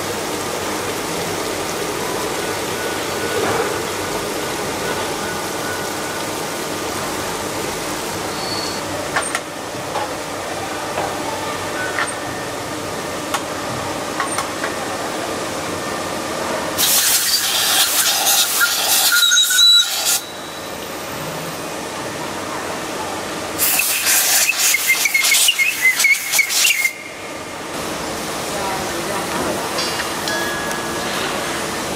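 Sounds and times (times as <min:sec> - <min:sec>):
factory machinery humming: 0:00.0 - 0:31.9
loud hissing blast with squeal: 0:08.3 - 0:08.9, 0:16.8 - 0:20.7, 0:23.6 - 0:27.1.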